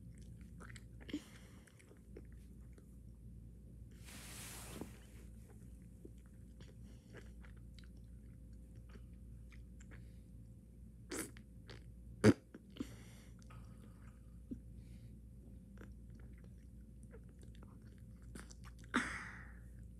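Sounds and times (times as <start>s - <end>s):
bubblegum chewing: 11.1s - 12.8s.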